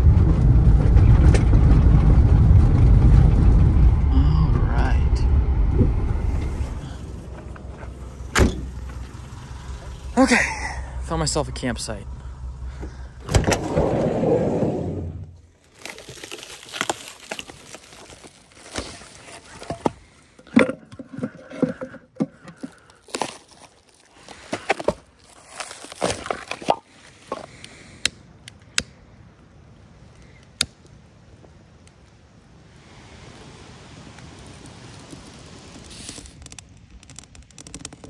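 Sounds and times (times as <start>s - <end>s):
van sliding door rolling open: 0.0s - 10.3s, 12.5s - 15.4s.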